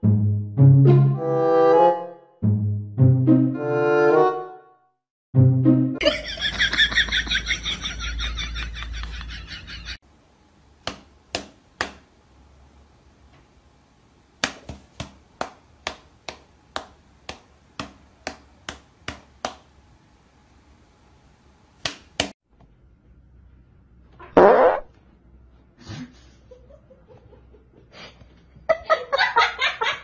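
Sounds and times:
brass-like musical notes: 0:00.0 - 0:04.8, 0:05.4 - 0:06.0
paw and hand pats: 0:10.9 - 0:12.0, 0:14.4 - 0:19.7.

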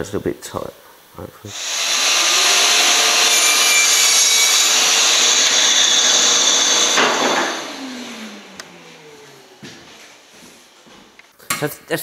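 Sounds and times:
mitre saw cutting timber: 0:01.5 - 0:09.6
saw blade spinning down: 0:01.5 - 0:09.6.

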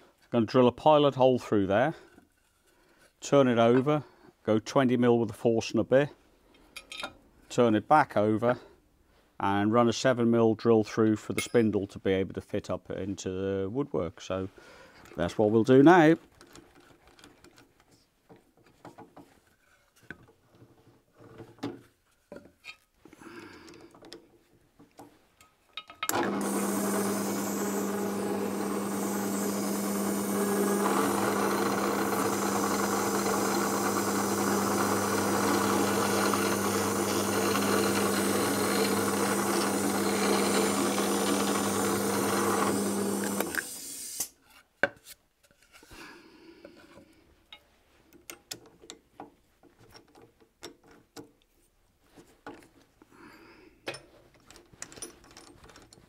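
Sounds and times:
drill bit cutting wood: 0:26.1 - 0:44.3
electric drill motor hum: 0:26.1 - 0:44.3.

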